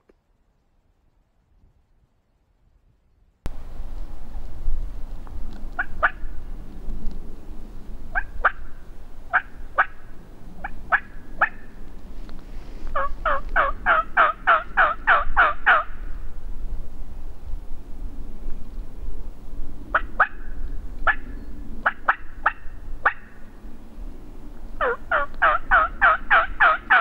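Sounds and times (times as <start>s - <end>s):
turkey yelping: 5.8s - 6.2s, 8.1s - 8.7s, 9.3s - 10.0s, 10.6s - 11.7s, 13.0s - 15.9s, 19.9s - 20.4s, 21.8s - 23.3s, 24.8s - 27.0s.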